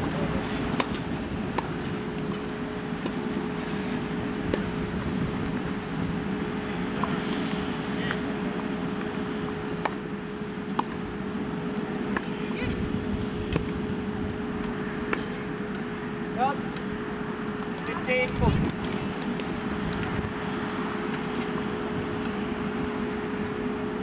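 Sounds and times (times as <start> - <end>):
background murmur: 0.0 - 19.8
steady hum: 0.0 - 24.0
racket hitting tennis ball: 10.7 - 11.0.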